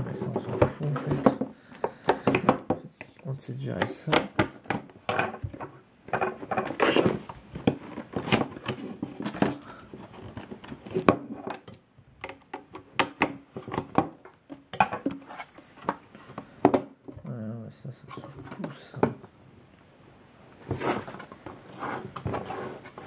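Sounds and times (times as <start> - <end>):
cardboard box rustling: 0.0 - 1.6, 6.3 - 11.1, 20.5 - 23.0.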